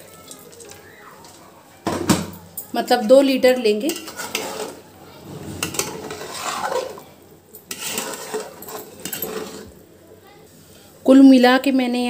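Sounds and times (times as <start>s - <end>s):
ladle scraping metal pot: 3.4s - 9.8s.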